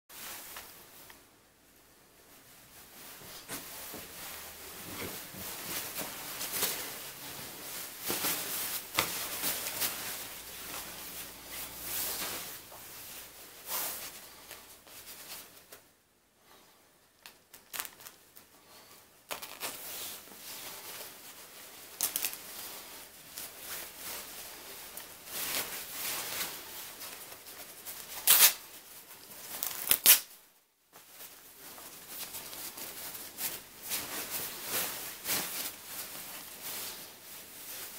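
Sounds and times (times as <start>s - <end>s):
nylon jacket rustling: 2.2s - 15.8s, 17.7s - 37.9s
fabric ripping: 19.3s - 19.8s, 28.0s - 28.7s, 29.5s - 30.3s.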